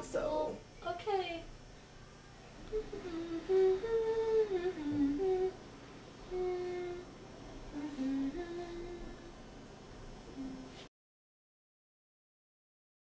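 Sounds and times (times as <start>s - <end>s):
woman humming: 2.6s - 5.6s, 6.2s - 7.1s, 7.7s - 9.4s, 10.4s - 10.9s.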